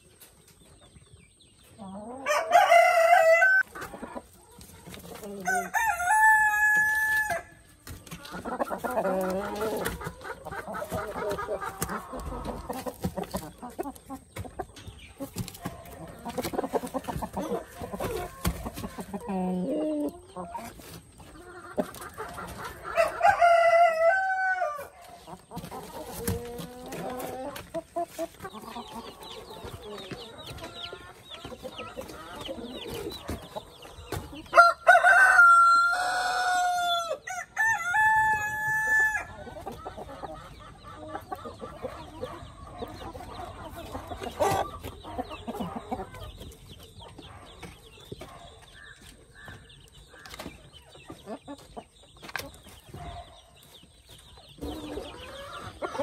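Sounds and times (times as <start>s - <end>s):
chickens clucking: 0.0s - 56.0s
rooster crowing: 2.3s - 3.6s, 5.4s - 7.5s, 34.6s - 39.3s.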